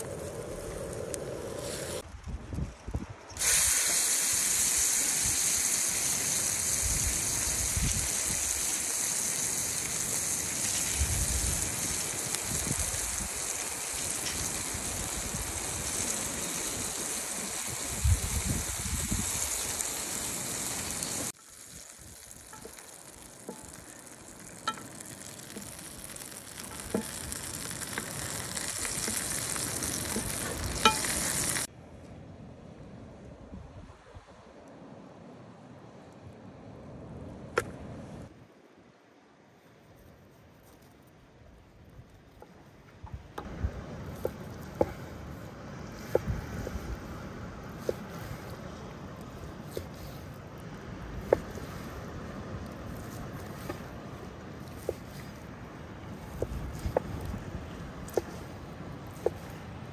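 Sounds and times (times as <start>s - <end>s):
steak sizzling in hot oil: 3.4s - 31.7s.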